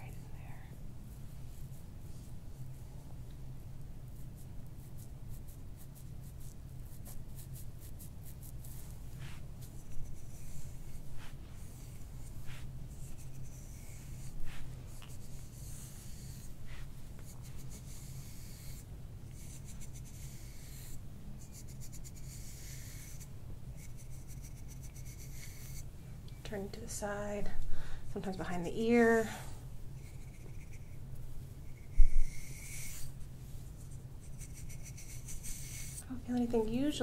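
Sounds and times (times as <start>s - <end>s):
low steady hum: 0.0s - 37.0s
massage tool scraping skin and hair: 4.1s - 25.9s, 30.0s - 31.0s, 31.6s - 33.2s, 33.8s - 36.5s.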